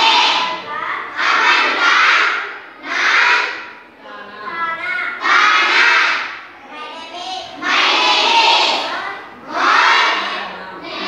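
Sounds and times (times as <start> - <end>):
schoolgirls chanting in unison: 0.0 - 6.7, 7.4 - 11.0.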